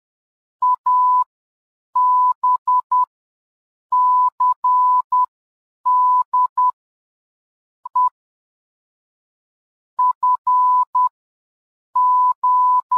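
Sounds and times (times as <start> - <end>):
morse code beeps: 10.0 - 11.1, 12.0 - 12.9.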